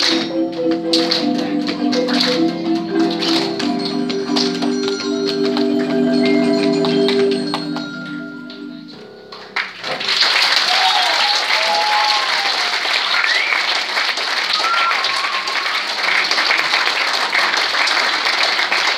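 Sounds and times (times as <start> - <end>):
marimba notes ringing: 0.0 - 9.6
audience applause: 9.3 - 18.9.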